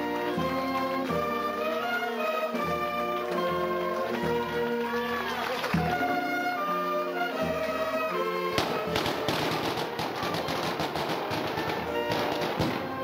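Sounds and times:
brass band playing march: 0.0 - 13.0
firecrackers crackling: 8.4 - 13.0.

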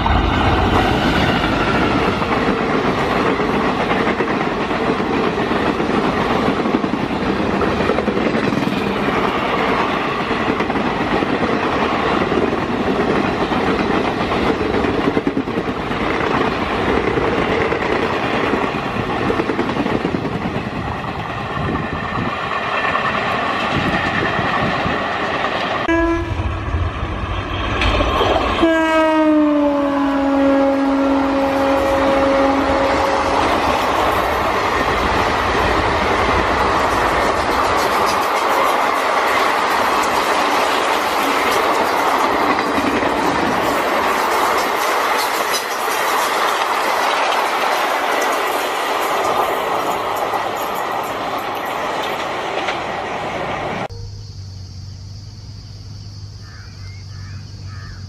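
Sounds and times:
train passing at speed: 0.0 - 57.8
locomotive horn: 25.8 - 26.8, 28.6 - 33.6.

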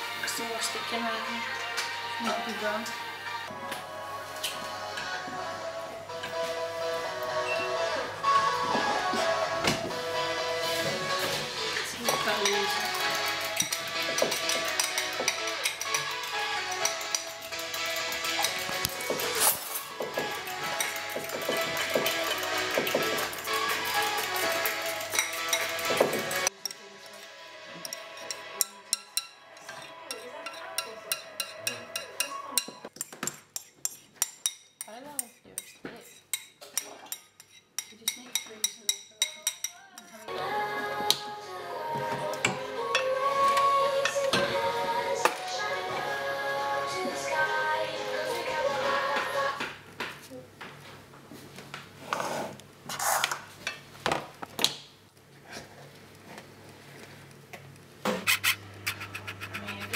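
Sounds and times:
background music with voice: 0.0 - 32.8, 39.7 - 49.6
metal spoon scraping a metal tin: 12.0 - 26.8, 27.8 - 40.3, 58.2 - 59.9.

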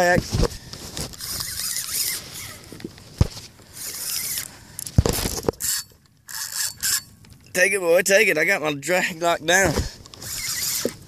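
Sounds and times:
fishing reel drag buzzing: 0.8 - 2.8, 3.6 - 7.1, 10.1 - 11.0.

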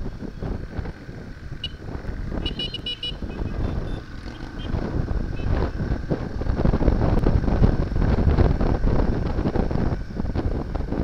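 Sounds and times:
motorcycle engine rumble: 0.0 - 11.0
wind buffeting microphone: 0.0 - 11.0
horn beeps: 1.6 - 1.8, 2.4 - 5.6.

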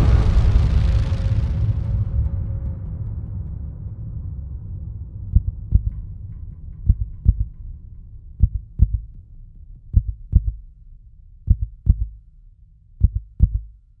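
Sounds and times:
low hum: 0.0 - 14.0
heartbeat double thumps: 5.3 - 6.1, 6.8 - 7.6, 8.4 - 9.2, 9.9 - 10.7, 11.5 - 12.2, 13.0 - 13.8.

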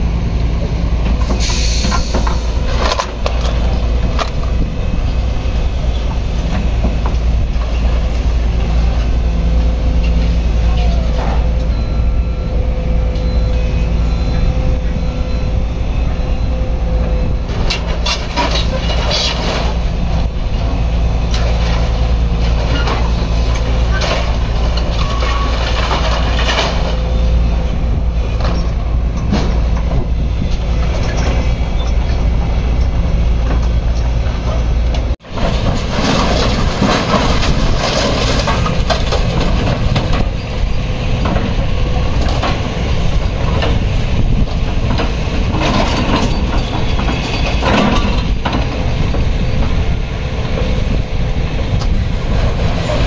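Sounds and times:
diesel engines of heavy machinery: 0.0 - 53.0
scrap metal clattering and clanking: 17.5 - 20.6, 21.2 - 27.3, 30.8 - 49.9.

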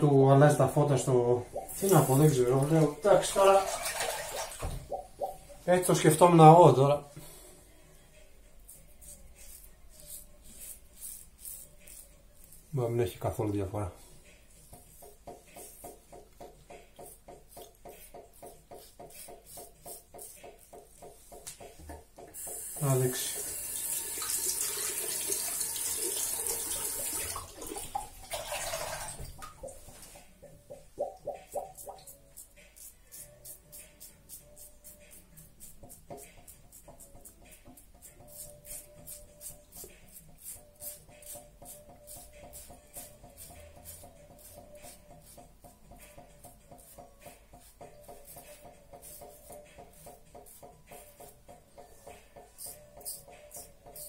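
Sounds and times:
razor scraping stubble: 8.6 - 12.9.

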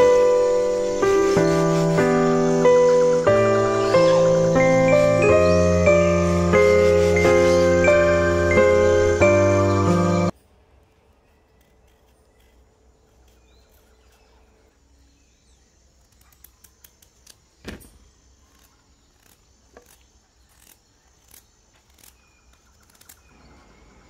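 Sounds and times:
small clicks: 16.0 - 17.9, 18.5 - 23.3.

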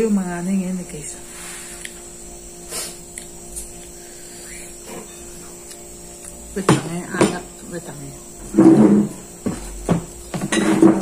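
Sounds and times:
electrical hum: 0.0 - 11.0
person chewing: 5.6 - 6.4.

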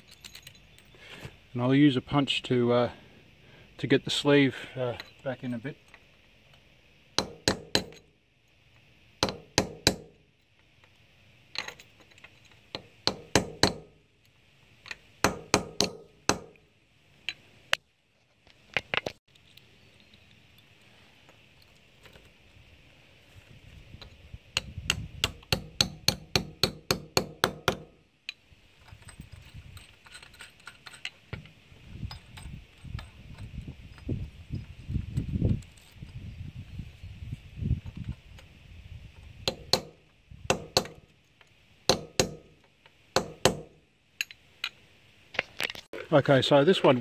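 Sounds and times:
hammer tapping steel punch: 7.2 - 8.1, 9.2 - 10.2, 12.8 - 14.0, 15.2 - 16.6, 24.6 - 28.0, 39.5 - 41.0, 41.9 - 42.6, 43.2 - 43.8.

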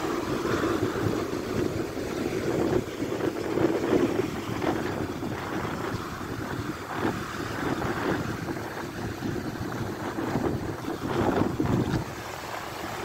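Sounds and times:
waves washing up a beach: 0.0 - 13.0.

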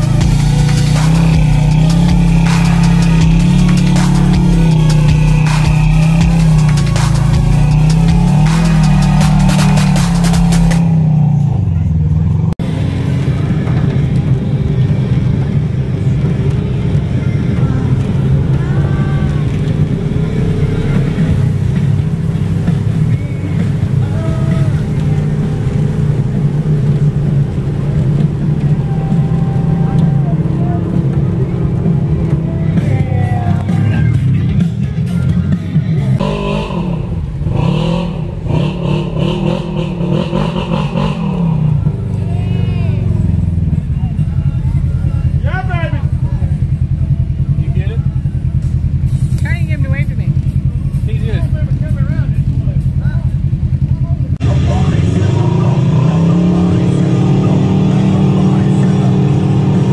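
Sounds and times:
off-road vehicle engines droning: 0.0 - 59.9.

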